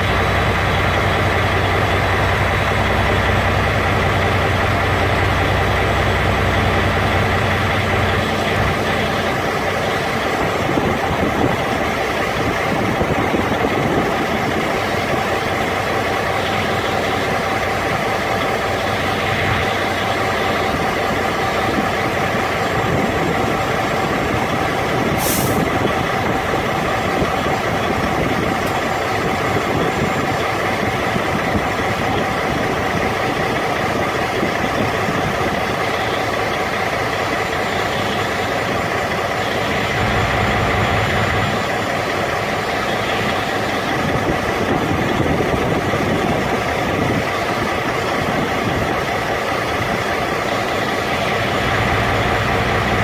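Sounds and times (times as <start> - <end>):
brief high hiss: 25.2 - 25.7.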